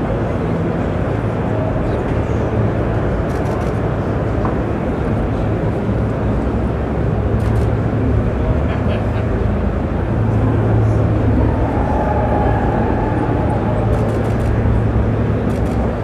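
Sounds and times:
crowd din in hall: 0.0 - 16.0
deep steady hum: 4.7 - 16.0.

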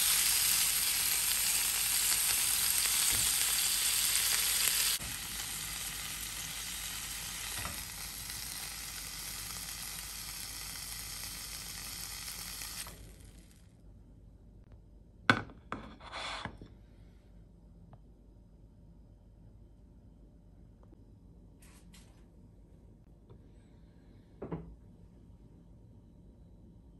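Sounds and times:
meat sizzling in a frying pan: 0.0 - 13.5
short scrapes: 15.9 - 16.6.

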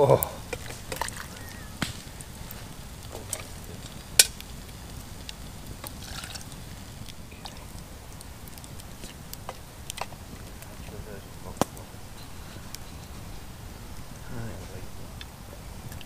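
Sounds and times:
stew being poured: 5.2 - 7.8.

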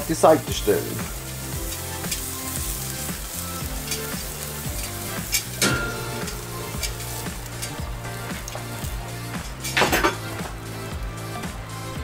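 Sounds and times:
background music with a beat: 0.0 - 12.0
meatballs sizzling on a grill: 0.0 - 12.0
metal tongs clinking: 3.8 - 8.6.

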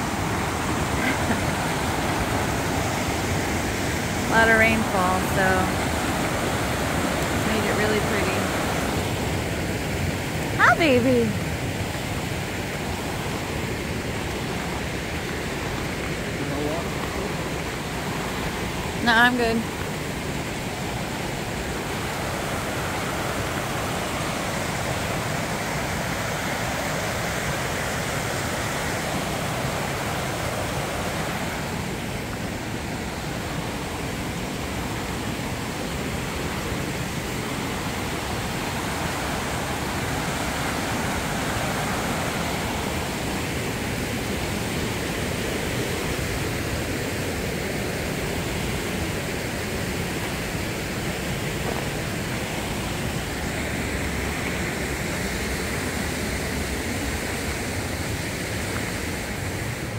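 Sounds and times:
creek rushing over rocks: 0.0 - 59.9.

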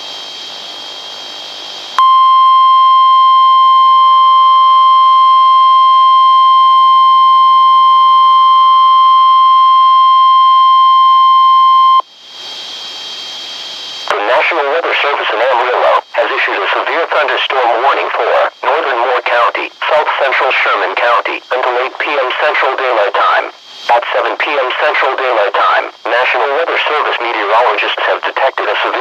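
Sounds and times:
loud steady alarm tone: 2.0 - 12.1
radio hiss with faint whine: 11.4 - 29.0.

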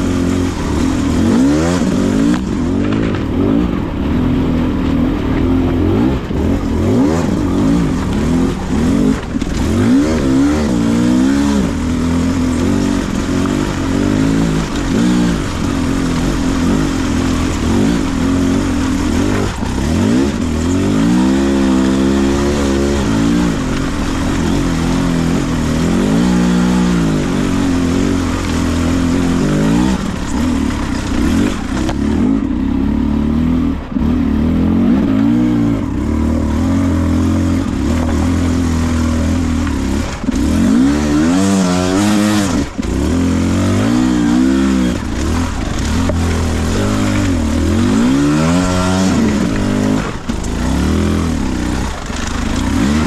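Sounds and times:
motorcycle engine revving: 0.0 - 53.0.

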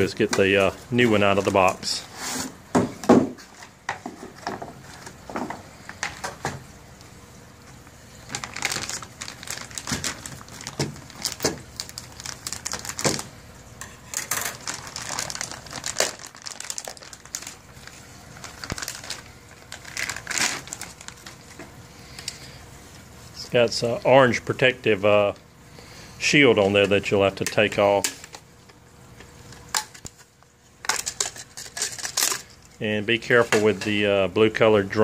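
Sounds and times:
plastic bag crinkling: 8.1 - 22.5, 29.4 - 32.9
scissors cutting plastic: 30.8 - 32.5.

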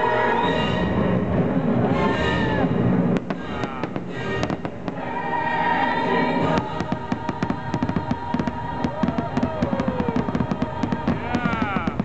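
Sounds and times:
choral music: 0.0 - 12.0
fireworks bursting: 2.5 - 5.3, 6.4 - 12.0.

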